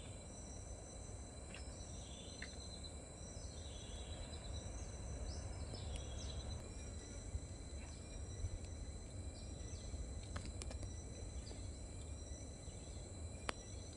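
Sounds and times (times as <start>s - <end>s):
insects droning: 0.0s - 13.9s
birds chirping: 3.2s - 10.1s.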